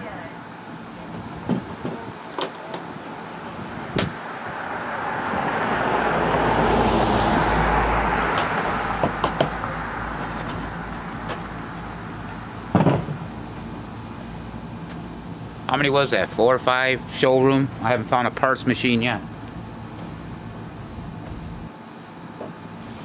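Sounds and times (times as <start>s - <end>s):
car driving past: 4.2s - 12.0s
machines set down on tailgate: 12.7s - 13.3s.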